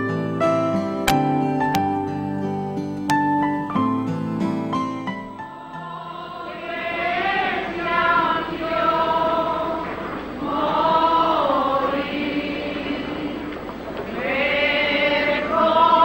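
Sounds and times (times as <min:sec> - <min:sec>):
group singing slow chant: 0:05.1 - 0:16.0.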